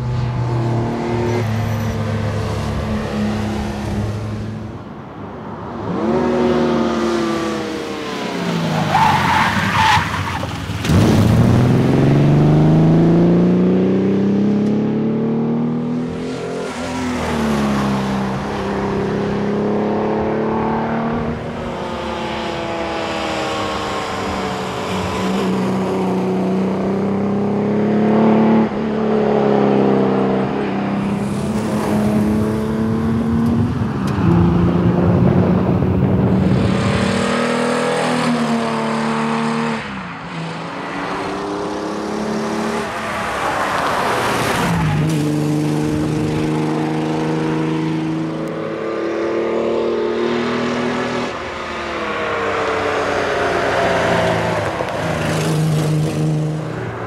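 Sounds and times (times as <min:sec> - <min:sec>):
car engine revving through gears: 0:05.8 - 0:24.4, 0:25.0 - 0:56.9.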